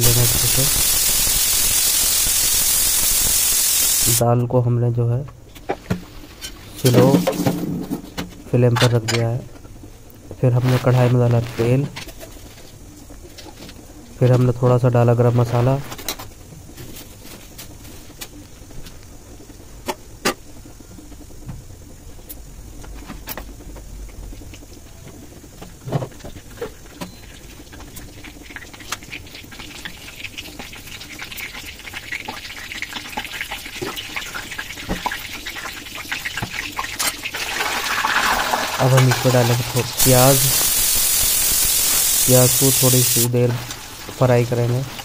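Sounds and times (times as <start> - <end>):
hot oil crackling and popping: 0.0 - 4.2, 15.6 - 45.0.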